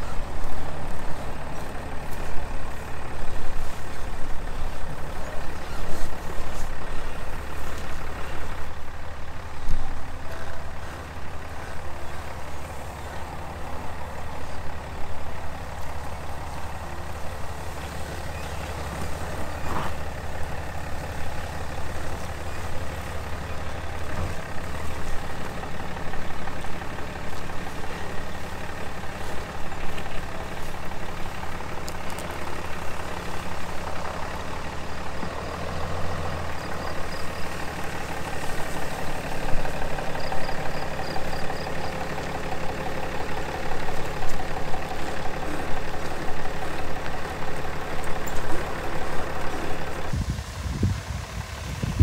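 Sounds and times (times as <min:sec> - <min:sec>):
truck engine running slowly: 0:00.0 - 0:52.0
wind buffeting microphone: 0:50.1 - 0:52.0.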